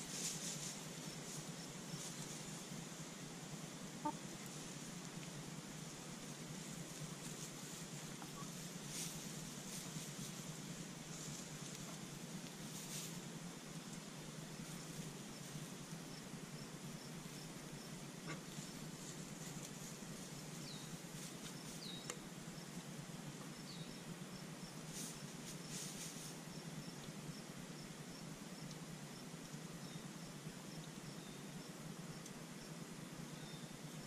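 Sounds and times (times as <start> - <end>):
hens scratching in straw: 0.0 - 3.0, 4.0 - 16.0, 18.3 - 22.0, 24.8 - 26.5.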